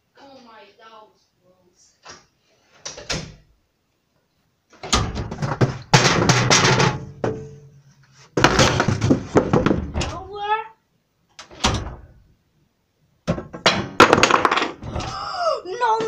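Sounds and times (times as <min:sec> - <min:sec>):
loud knocking and banging: 0:04.9 - 0:07.6, 0:08.4 - 0:10.2, 0:13.3 - 0:15.1.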